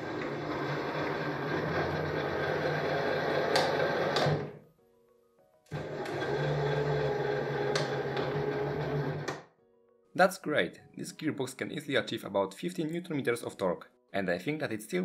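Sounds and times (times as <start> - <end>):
motor and gearbox whirring: 0.0 - 4.6, 5.7 - 9.4.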